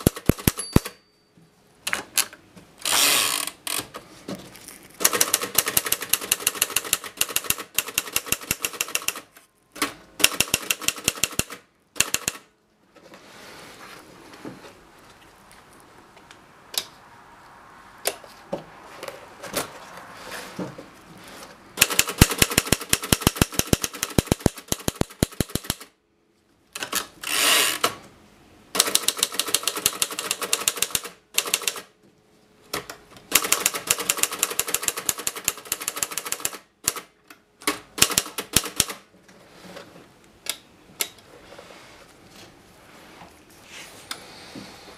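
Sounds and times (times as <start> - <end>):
typewriter key strikes: 0.0 - 1.0.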